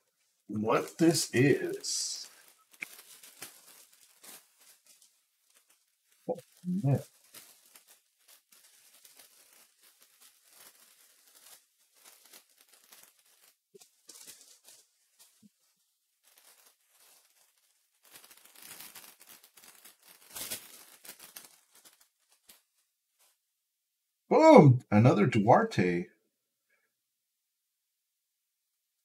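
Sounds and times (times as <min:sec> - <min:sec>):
foil wrappers crinkling and tearing: 0:00.7 - 0:22.8.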